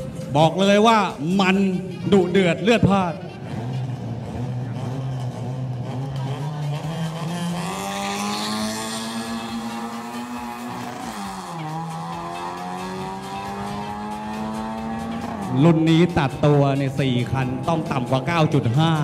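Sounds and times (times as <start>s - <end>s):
drag racing car engine revving: 0.0s - 19.0s.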